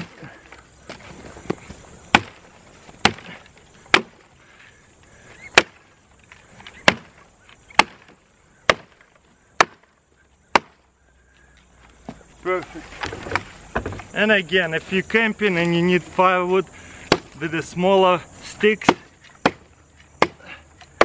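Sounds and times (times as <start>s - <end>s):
hatchet chopping wood: 1.5s - 2.4s, 3.0s - 4.2s, 5.4s - 5.8s, 6.8s - 9.9s, 10.5s - 10.8s, 17.0s - 17.4s, 18.7s - 21.0s.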